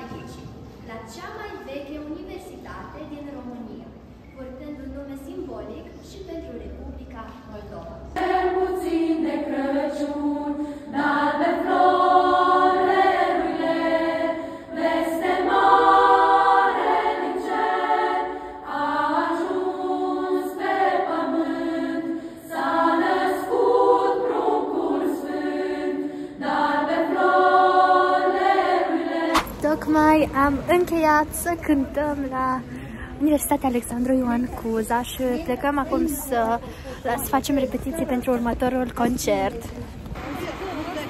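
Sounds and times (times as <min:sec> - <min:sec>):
choir singing a carol: 0:08.2 - 0:29.8.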